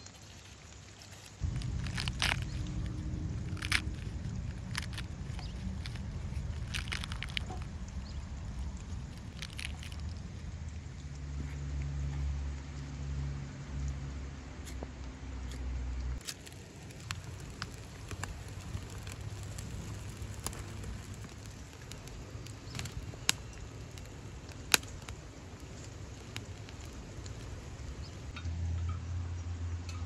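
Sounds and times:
fire popping: 0:00.0 - 0:11.4, 0:16.2 - 0:28.4
fire crackling: 0:00.0 - 0:14.8, 0:16.0 - 0:28.4
low steady rumble: 0:01.3 - 0:30.0.

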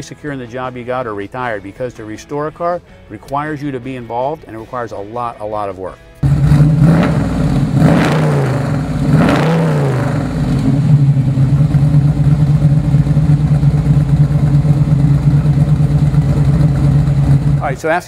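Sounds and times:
car engine revving and idling: 0:06.2 - 0:17.8.

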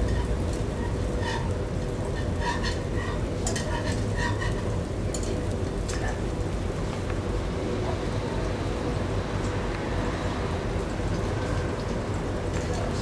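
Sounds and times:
whisk knocking and scraping pan: 0:00.0 - 0:04.7
butter sizzling: 0:00.0 - 0:06.8.

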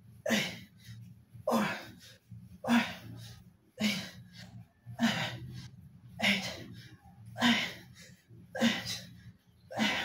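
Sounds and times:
man grunting: 0:01.5 - 0:02.0, 0:02.7 - 0:03.2, 0:07.3 - 0:07.9, 0:08.6 - 0:09.1, 0:09.7 - 0:10.0.

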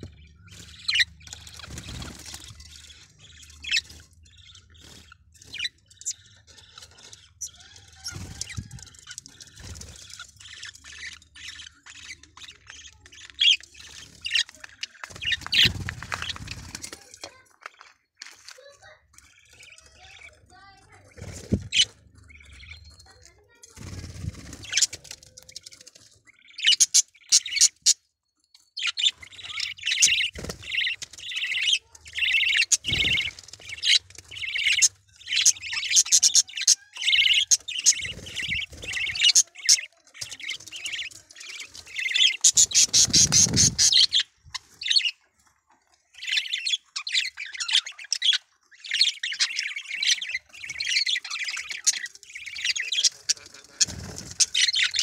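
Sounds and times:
budgerigar chattering: 0:41.9 - 0:45.2.

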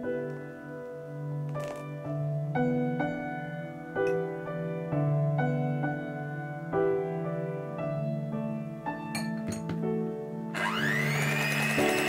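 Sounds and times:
slow piano music: 0:00.0 - 0:12.0.

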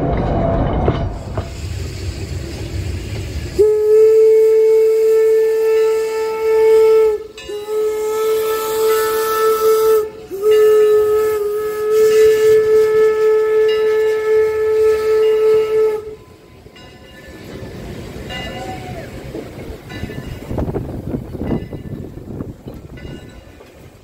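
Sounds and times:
steam hissing: 0:01.1 - 0:24.0
steam locomotive whistle blasts: 0:03.5 - 0:16.8.

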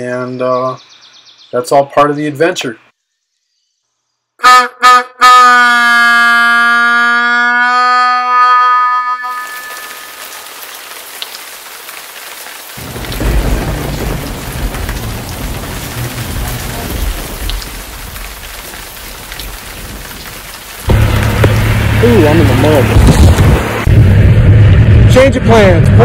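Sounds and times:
harmonica chord: 0:04.4 - 0:10.1
heavy rain pouring: 0:09.2 - 0:25.0
thunder rumbling: 0:12.7 - 0:25.2.

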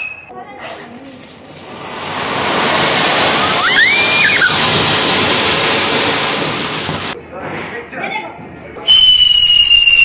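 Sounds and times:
firework fountain hissing: 0:01.0 - 0:07.2.

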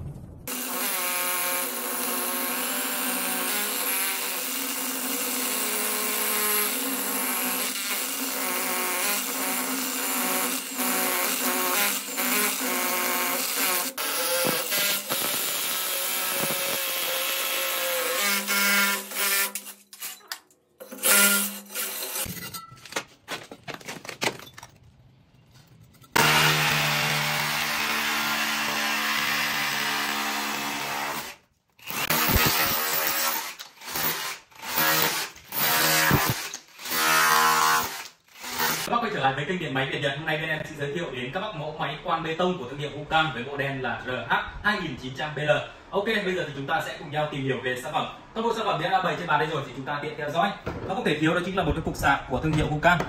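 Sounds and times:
hammer drill boring into concrete: 0:00.5 - 0:22.3, 0:26.2 - 0:38.9.

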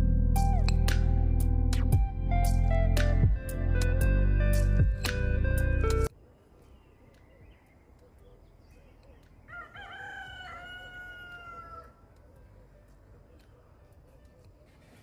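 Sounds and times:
rooster crowing: 0:09.5 - 0:12.4.

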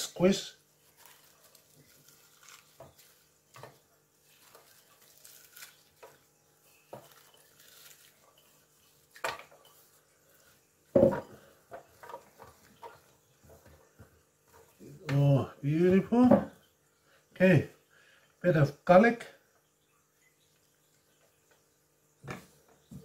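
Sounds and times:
onion rustling: 0:00.0 - 0:16.3
bowl and tray knocks: 0:11.0 - 0:11.3, 0:16.2 - 0:16.6.

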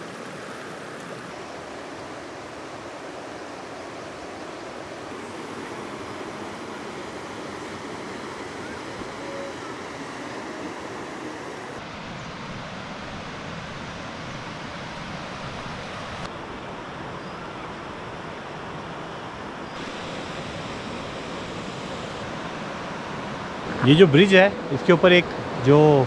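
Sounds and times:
river rushing over rocks: 0:00.0 - 0:11.9.

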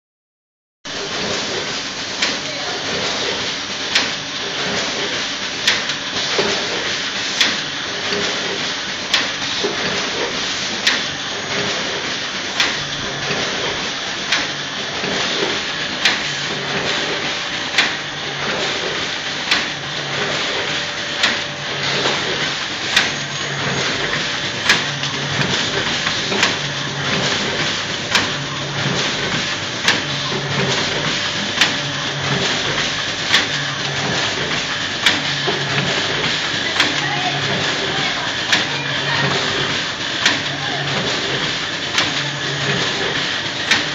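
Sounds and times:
packing machine hum and rattle: 0:00.9 - 0:43.9
sharp machine clack: 0:18.7 - 0:43.9.

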